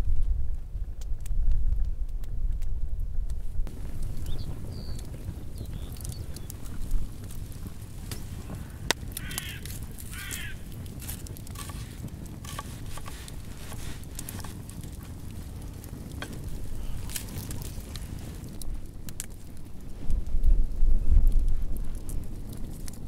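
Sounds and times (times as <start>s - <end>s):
low wind rumble: 0.0s - 23.0s
bird calls: 4.2s - 6.5s, 9.2s - 10.6s.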